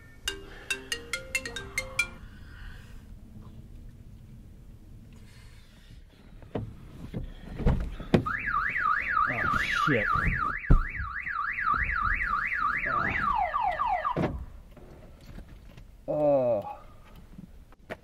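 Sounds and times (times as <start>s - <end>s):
car alarm siren: 8.2s - 14.4s
knocks and thumps: 10.2s - 11.1s.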